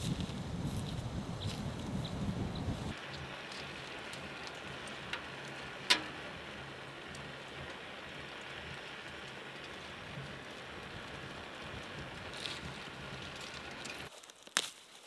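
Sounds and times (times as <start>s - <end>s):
fire crack: 0.0s - 15.0s
wood stove hissing and crackling: 0.0s - 15.0s.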